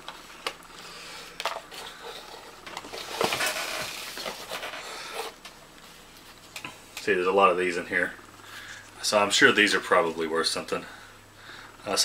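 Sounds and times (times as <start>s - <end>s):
cardboard sheets scraping and rustling: 1.7s - 6.4s.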